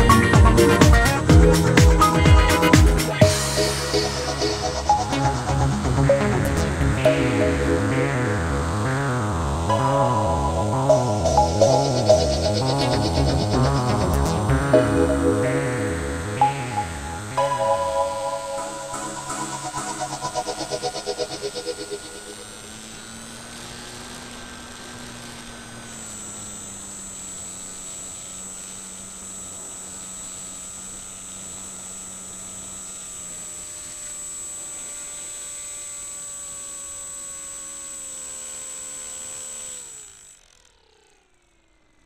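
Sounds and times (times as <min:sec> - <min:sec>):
small motor whining: 0:18.7 - 0:42.0.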